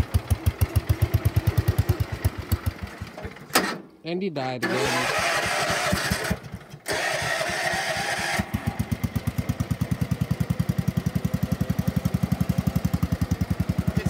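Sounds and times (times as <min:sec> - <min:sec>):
starter motor cranking: 0:04.6 - 0:09.0
small engine running: 0:04.6 - 0:14.0.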